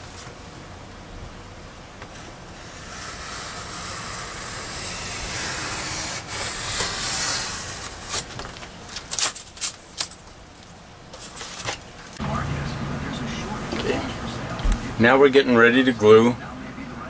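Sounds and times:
knife cutting foam board: 2.6 - 8.3.

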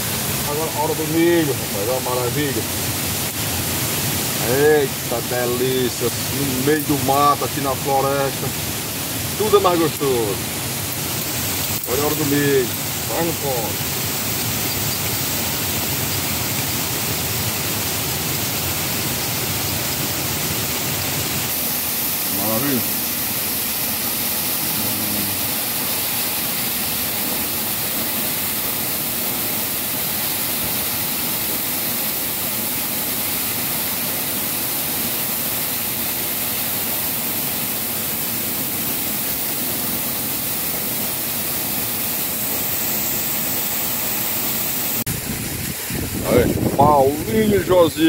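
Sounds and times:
waterfall roaring: 0.0 - 48.0.

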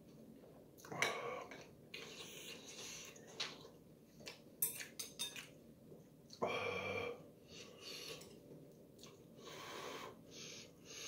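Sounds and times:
chopsticks clinking on a ceramic bowl: 4.6 - 5.5.

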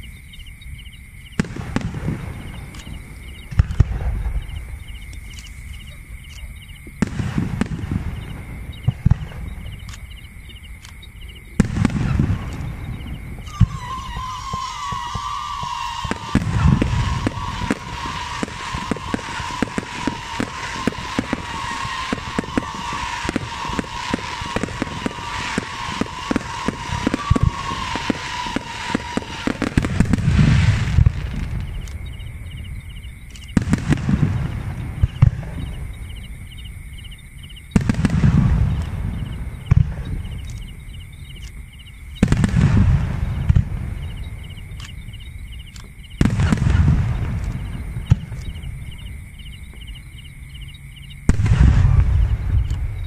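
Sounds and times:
fireworks crackling pops: 1.4 - 10.2, 11.6 - 32.4, 33.3 - 35.9, 37.7 - 41.6, 42.2 - 49.9, 51.3 - 53.0
high whistle: 13.4 - 30.2
firework shell bursts booming: 13.5 - 31.5.

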